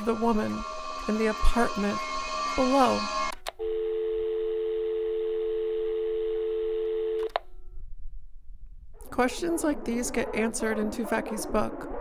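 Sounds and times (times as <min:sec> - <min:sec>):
telephone dial tone: 0:03.3 - 0:07.4.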